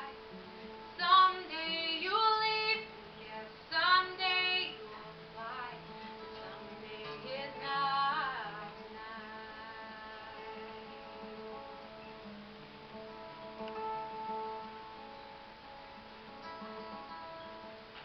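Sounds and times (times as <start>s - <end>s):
acoustic guitar chords: 0.0s - 18.0s
woman singing: 1.0s - 11.4s.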